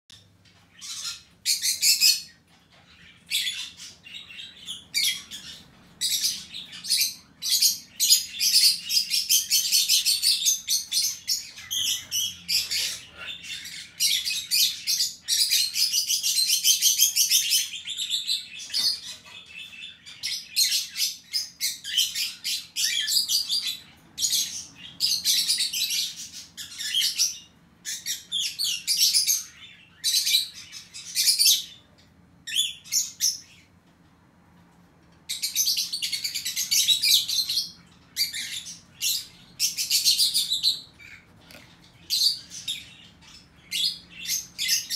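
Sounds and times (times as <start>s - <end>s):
budgerigars chattering: 0.7s - 31.8s.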